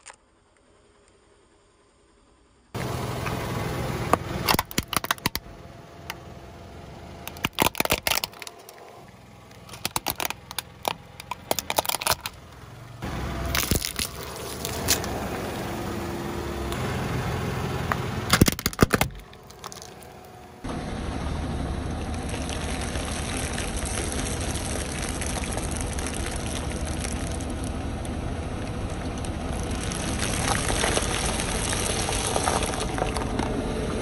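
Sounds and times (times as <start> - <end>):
car engine running: 0.2 - 34.0
plastic toy cracking under tyre: 4.4 - 5.5, 7.3 - 8.8, 9.6 - 12.4, 13.5 - 15.2, 18.3 - 20.2.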